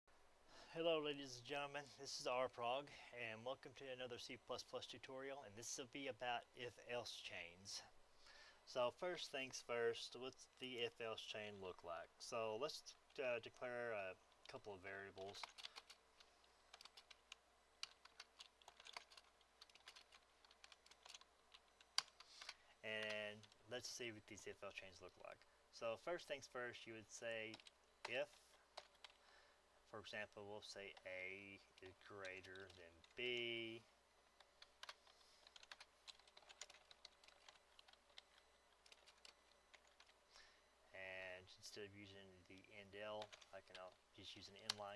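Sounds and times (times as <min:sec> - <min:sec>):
typing on a computer keyboard: 0:15.2 - 0:23.6, 0:27.5 - 0:29.2, 0:31.8 - 0:33.2, 0:34.4 - 0:40.2, 0:43.2 - 0:44.9.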